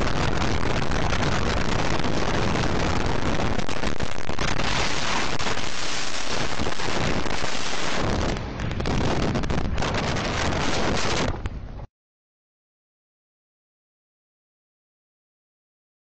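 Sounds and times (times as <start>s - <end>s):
car road and wind noise: 0.0s - 11.9s.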